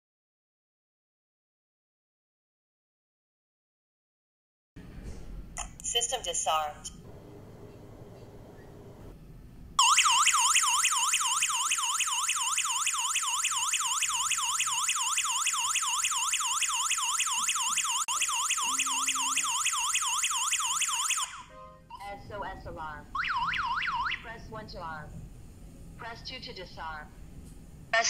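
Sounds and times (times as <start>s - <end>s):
alarm siren warbling: 9.8s - 22.0s, 23.2s - 24.2s.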